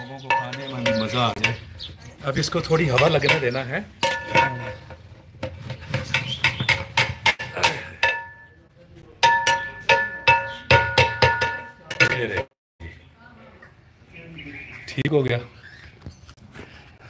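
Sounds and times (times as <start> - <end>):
metal rod knocking in a pot: 0.0 - 1.6, 2.7 - 8.5, 9.2 - 12.5
pot ringing metallic tone: 0.0 - 1.6, 4.0 - 5.0, 7.7 - 8.6, 9.2 - 12.5.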